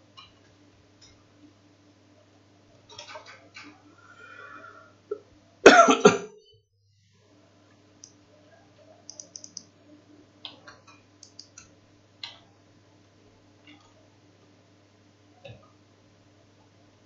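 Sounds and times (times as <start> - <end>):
computer keys clicking: 9.1 - 9.7, 10.4 - 12.5.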